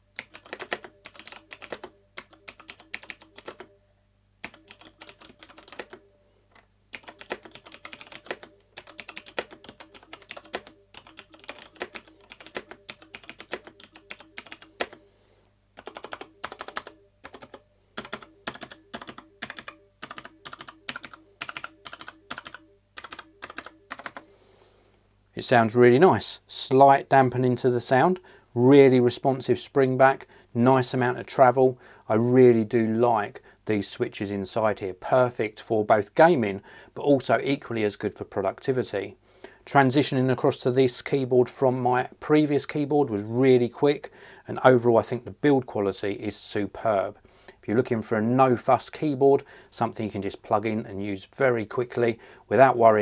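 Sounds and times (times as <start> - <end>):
mechanical keyboard typing: 0.2 - 3.7, 4.4 - 6.0, 6.9 - 15.0, 15.8 - 24.2.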